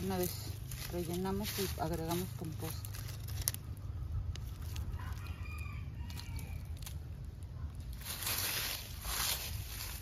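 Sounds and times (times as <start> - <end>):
hands working through soil: 0.0 - 4.9, 6.1 - 10.0
low rumble: 0.0 - 10.0
faint rooster crowing: 4.7 - 7.7.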